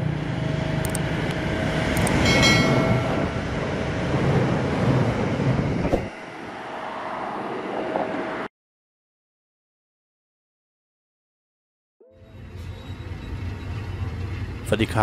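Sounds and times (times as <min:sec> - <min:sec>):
train rumbling on rails: 0:00.0 - 0:08.5, 0:12.2 - 0:15.0
high wheel squeal: 0:12.2 - 0:14.5.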